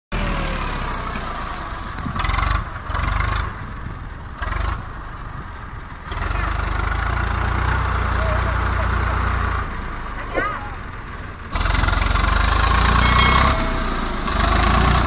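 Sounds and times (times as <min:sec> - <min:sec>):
tractor diesel engine straining: 0:00.2 - 0:15.0.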